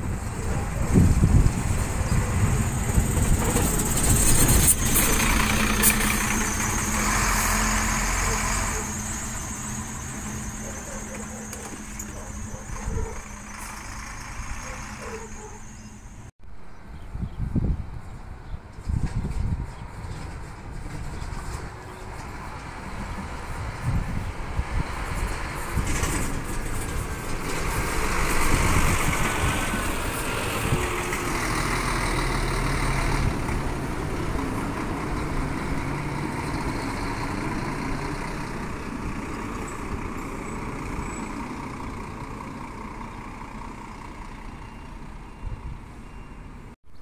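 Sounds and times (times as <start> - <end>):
coach diesel engine passing: 0.0 - 16.3, 20.4 - 45.8.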